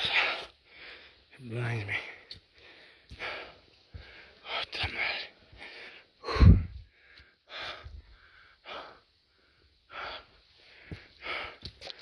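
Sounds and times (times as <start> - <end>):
person panting heavily: 0.0 - 1.2, 2.6 - 4.4, 5.5 - 12.0.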